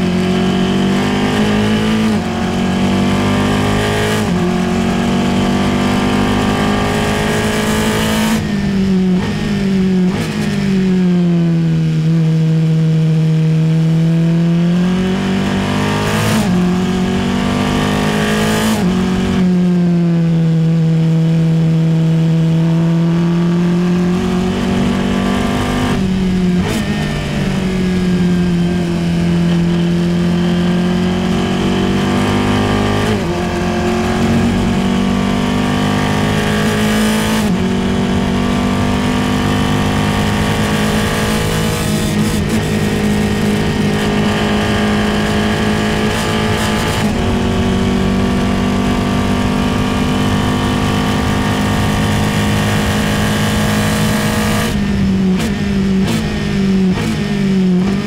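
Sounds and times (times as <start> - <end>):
race car engine at full throttle: 0.0 - 58.0
wind noise: 23.9 - 58.0.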